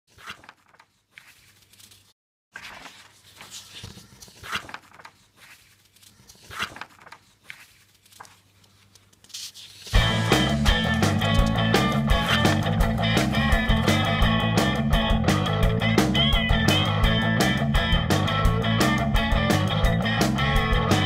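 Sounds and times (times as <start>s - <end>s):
guitar band music: 10.0s - 21.0s.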